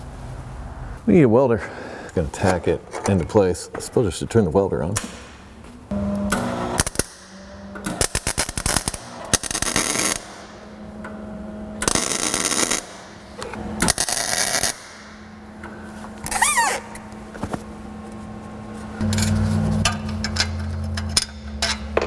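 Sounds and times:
welder low hum: 5.9 - 15.9, 18.6 - 21.7
welder crackling spatter: 7.9 - 10.3, 11.8 - 13.0.

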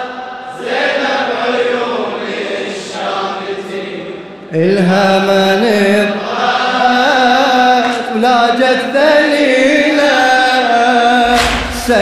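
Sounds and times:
man chanting melodically: 4.5 - 12.0.

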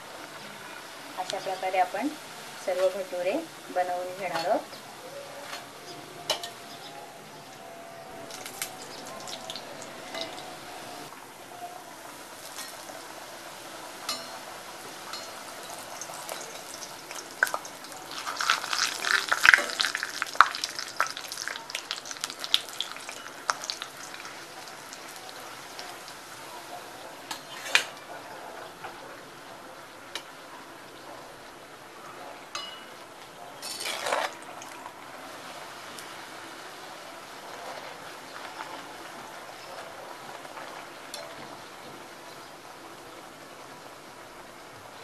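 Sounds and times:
bread sizzling in hot oil: 8.2 - 11.4, 12.0 - 27.9.

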